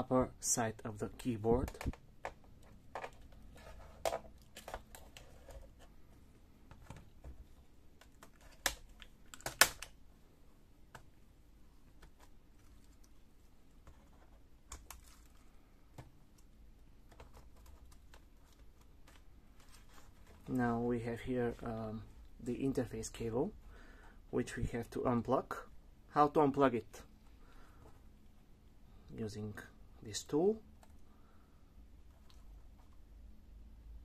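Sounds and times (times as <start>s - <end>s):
plastic clicks and snaps: 8.0s - 10.0s.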